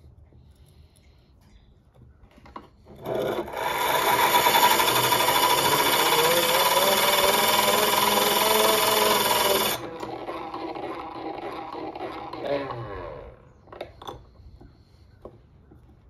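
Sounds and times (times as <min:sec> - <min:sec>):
grinding wheel sharpening iron: 0:02.9 - 0:13.2.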